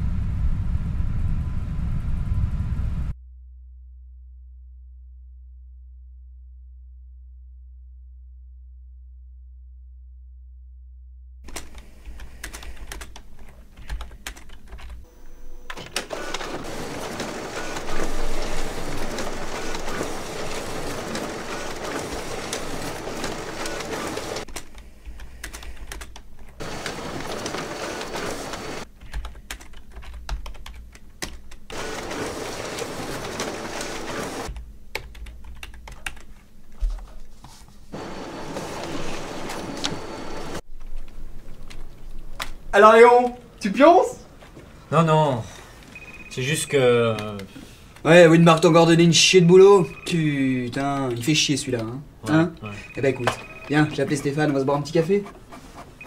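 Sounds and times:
keyboard typing: 11.5s - 15.0s, 15.7s - 36.4s, 49.8s - 56.0s
printer whining: 15.1s - 24.5s, 26.6s - 28.9s, 31.7s - 34.5s, 37.9s - 40.6s, 52.6s - 56.0s.

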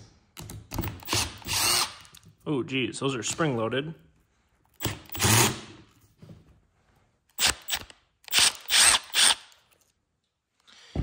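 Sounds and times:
cordless drill bursts: 1.0s - 2.1s, 4.8s - 5.6s, 7.4s - 9.6s.

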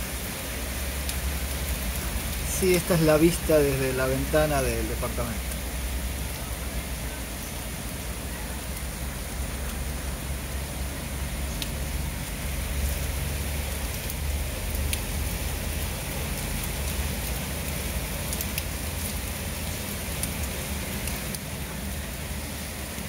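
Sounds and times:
heavy rain pouring: 0.0s - 23.0s
raindrops ticking: 0.5s - 23.0s.

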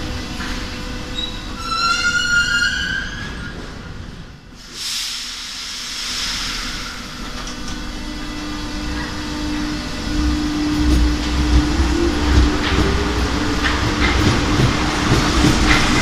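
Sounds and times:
train wheels rumbling: 0.0s - 16.0s
air hiss burst: 4.6s - 7.1s
traction motor hum: 8.6s - 15.8s.

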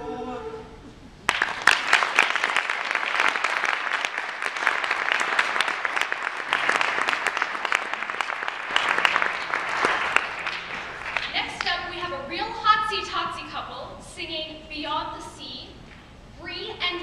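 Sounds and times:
audience applauding: 1.2s - 11.8s.

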